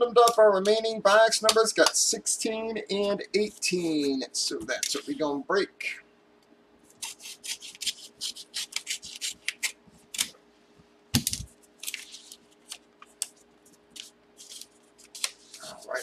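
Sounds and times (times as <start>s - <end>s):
scissors snipping paper: 6.9s - 10.3s
paper rustling: 11.2s - 16.0s.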